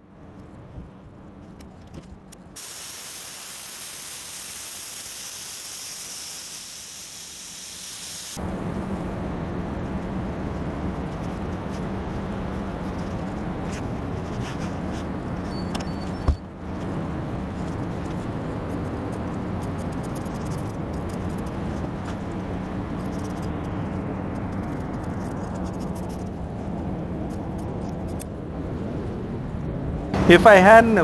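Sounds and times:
steady hum and hiss: 0.0 - 31.0
scissors snipping foam: 18.7 - 21.6.

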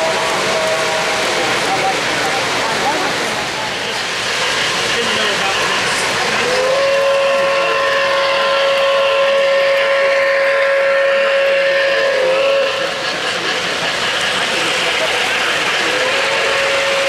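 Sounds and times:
model train steam whistle: 0.0 - 1.5, 5.6 - 13.1, 14.9 - 17.0
model train rumbling on track: 0.0 - 17.0.

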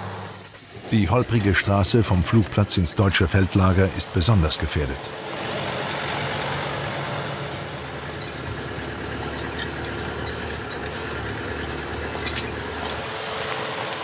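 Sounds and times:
vehicle engine and road rumble: 0.0 - 14.0
sharp rattles: 5.4 - 13.0.

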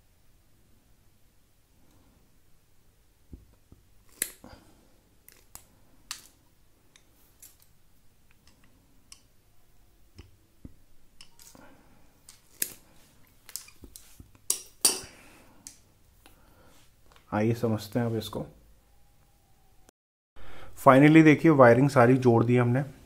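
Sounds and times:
pliers snipping wire: 4.1 - 4.5, 12.2 - 12.8.

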